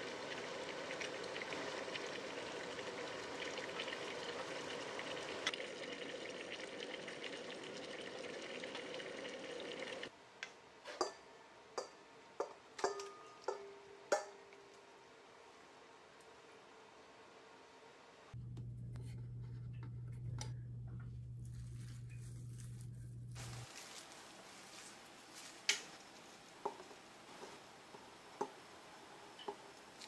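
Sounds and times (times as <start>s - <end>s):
kitchen utensils clinking: 12.8s - 14.4s.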